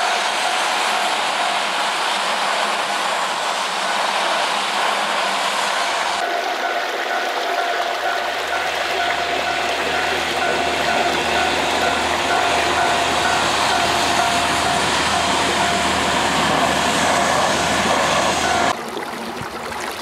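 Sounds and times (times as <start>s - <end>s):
level-crossing alarm ringing: 0.0s - 1.9s, 6.2s - 18.7s
train wheels rushing on rail: 0.0s - 18.8s.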